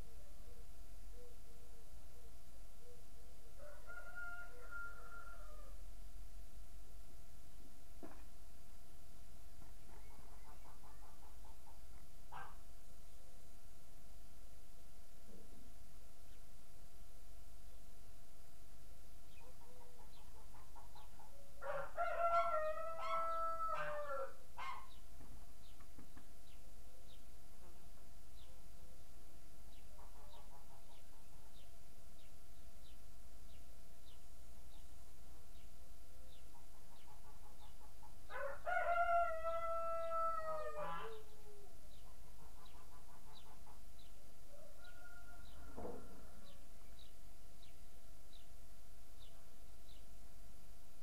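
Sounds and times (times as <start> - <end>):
rooster crowing: 3.6 - 5.8, 21.6 - 24.4, 38.3 - 41.2, 44.6 - 46.6
small birds chirping: 19.2 - 21.6, 24.6 - 38.4, 40.9 - 50.2.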